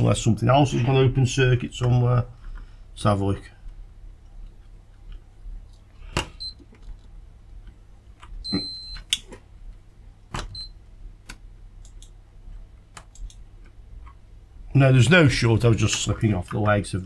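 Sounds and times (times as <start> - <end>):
multimeter short high beeps: 8.4 - 9.0.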